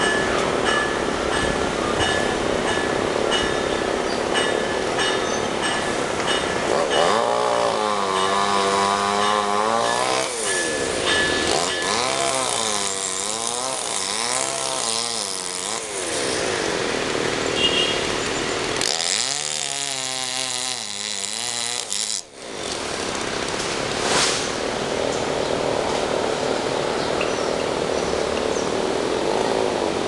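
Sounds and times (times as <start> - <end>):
chainsaw revving and cutting: 6.6 - 24.2.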